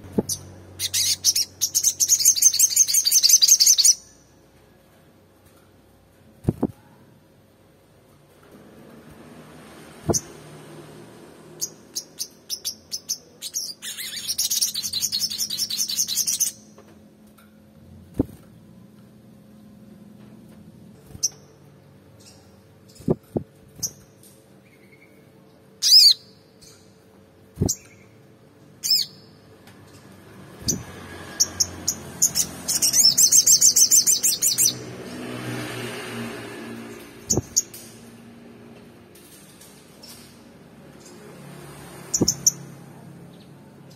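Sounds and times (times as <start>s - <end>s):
sunbird chirps and trills: 0.1s - 4.3s, 11.6s - 16.8s, 21.0s - 27.0s, 28.8s - 34.9s, 40.0s - 43.9s.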